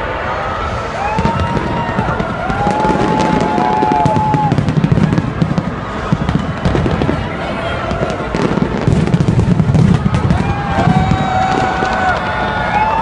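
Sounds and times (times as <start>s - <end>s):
fireworks crackling: 0.6s - 13.0s.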